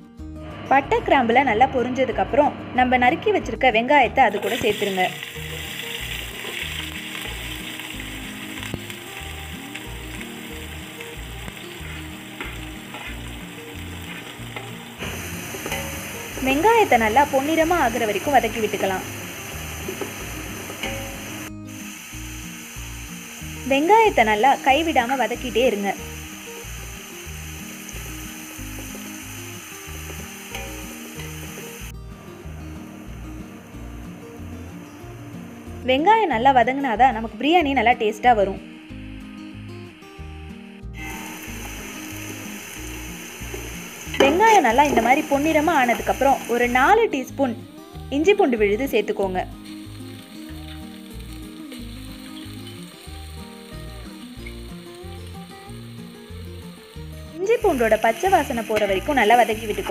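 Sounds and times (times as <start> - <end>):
soft music with stepping bass: 0.0 - 59.9
onions sizzling in oil: 4.2 - 59.9
music with steady bass beat: 29.8 - 47.0.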